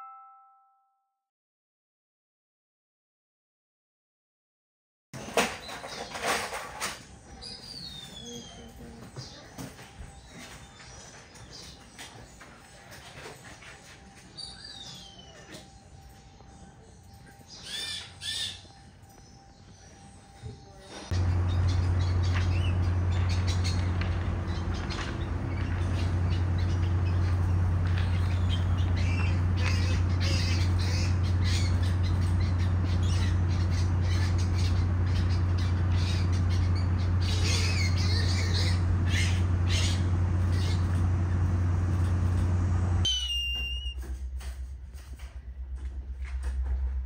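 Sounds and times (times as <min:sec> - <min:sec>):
steady low hum: 0:15.7 - 0:47.0
falling whistled call: 0:43.1 - 0:44.0.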